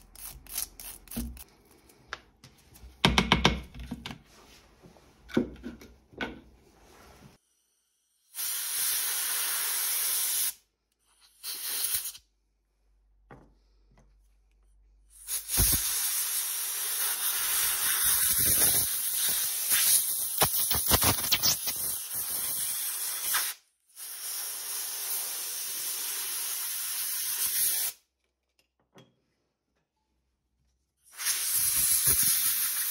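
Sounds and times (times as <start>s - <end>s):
pressurised spray hissing: 31.1s - 32.9s.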